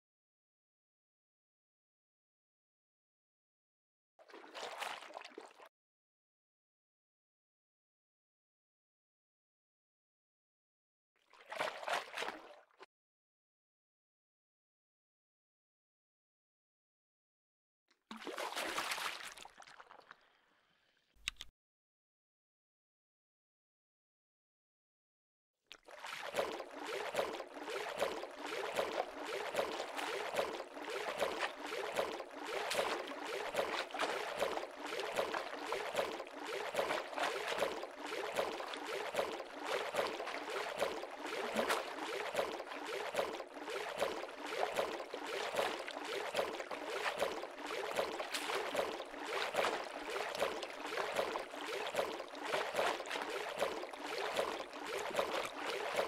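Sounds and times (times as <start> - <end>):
water splashing and sloshing: 4.2 - 5.7, 11.2 - 12.9, 17.9 - 20.4, 25.7 - 56.0.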